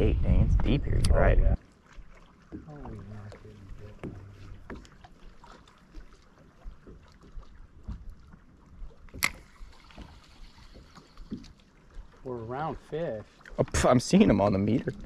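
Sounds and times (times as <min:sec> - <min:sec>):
wind on microphone: 0:00.0 - 0:01.6
small knocks and ticks: 0:09.1 - 0:12.1.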